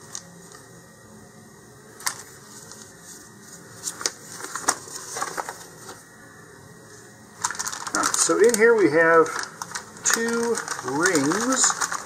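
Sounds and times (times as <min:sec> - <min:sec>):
paper rustling and crackling: 0:02.0 - 0:06.1, 0:07.4 - 0:12.0.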